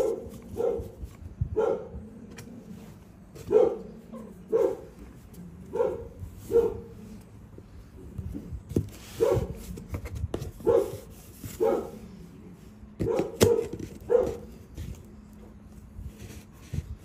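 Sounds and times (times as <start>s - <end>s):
dog barking: 0.0s - 2.0s, 3.4s - 4.9s, 5.7s - 7.0s, 9.2s - 9.6s, 10.6s - 12.0s, 13.0s - 14.5s.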